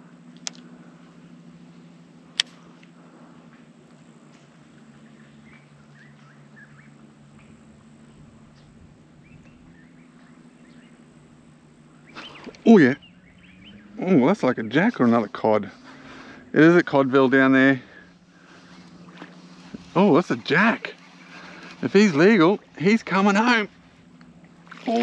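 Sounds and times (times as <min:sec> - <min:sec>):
steady low hum: 0:00.0 - 0:25.0
sharp click: 0:02.4 - 0:02.6.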